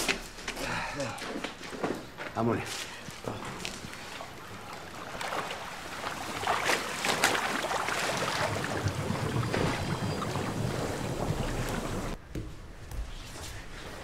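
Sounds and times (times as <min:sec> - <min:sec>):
liquid splashing and churning: 0:03.4 - 0:12.2.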